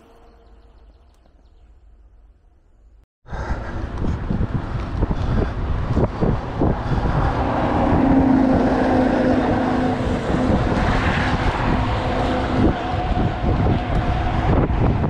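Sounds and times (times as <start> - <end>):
bicycle rolling rumble: 3.3 - 15.0
wind buffeting microphone: 3.3 - 15.0.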